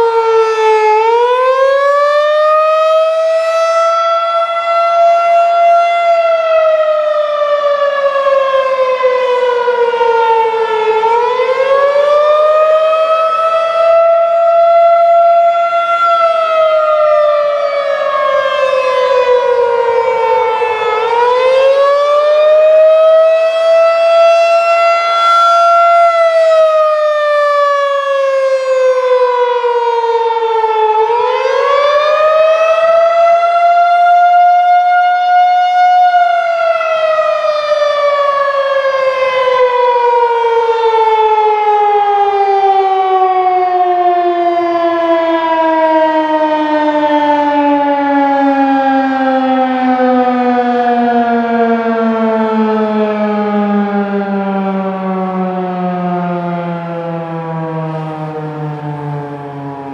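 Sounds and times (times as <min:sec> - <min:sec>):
electronic siren wailing: 0:00.0 - 0:59.9.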